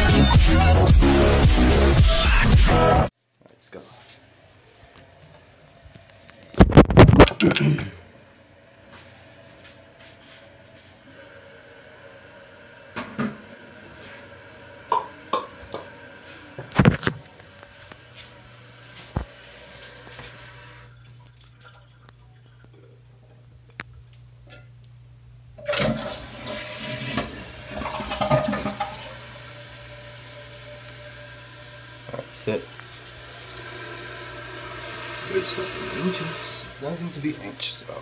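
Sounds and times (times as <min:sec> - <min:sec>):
toilet flushing: 0:10.5 - 0:22.7, 0:25.6 - 0:38.0.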